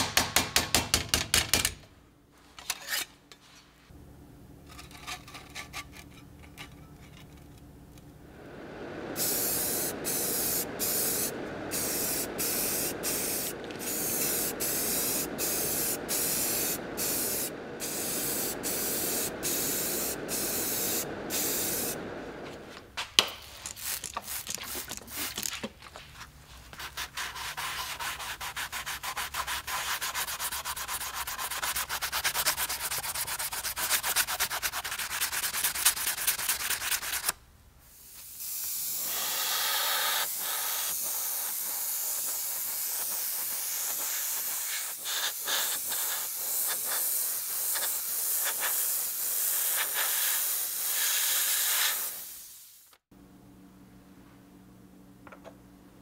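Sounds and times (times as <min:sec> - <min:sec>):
hand sanding strokes: 0:26.4 - 0:37.3, 0:39.4 - 0:52.1.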